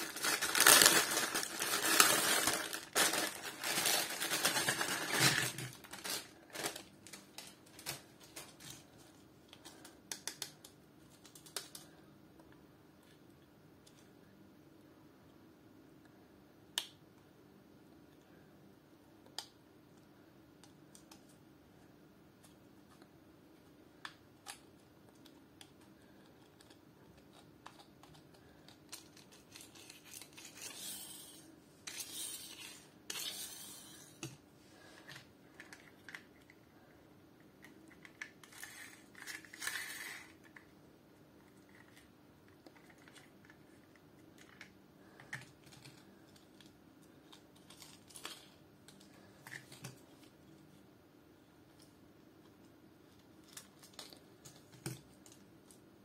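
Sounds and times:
toy cars clicking and knocking: 38.0s - 40.4s.

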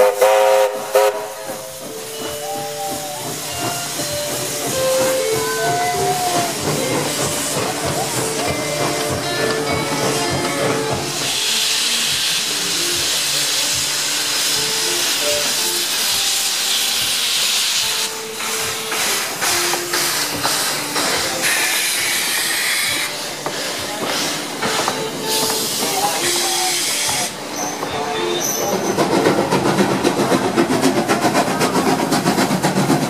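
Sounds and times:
steam engine exhaust beats: 0.0s - 27.9s, 28.6s - 33.0s
steam locomotive hissing: 0.0s - 33.0s.

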